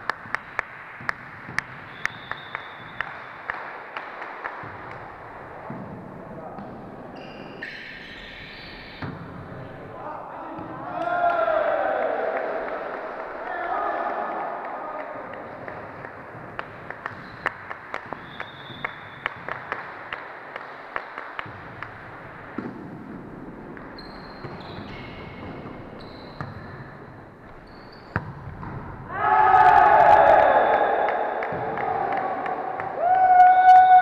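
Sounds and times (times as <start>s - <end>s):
ball bouncing on hall floor: 0.0s - 9.9s, 10.5s - 11.5s, 15.0s - 34.0s
shoe squeaks: 7.1s - 9.1s, 18.2s - 19.2s, 24.0s - 28.2s
people shouting: 10.9s - 12.8s, 29.1s - 34.0s.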